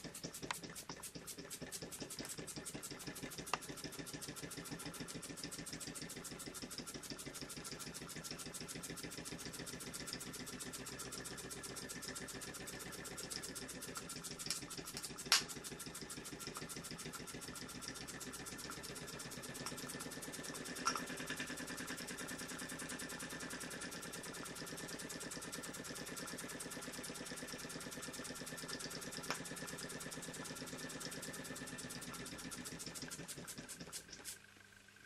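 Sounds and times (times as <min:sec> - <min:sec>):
model steam engine chuffing: 0:00.0 - 0:34.4.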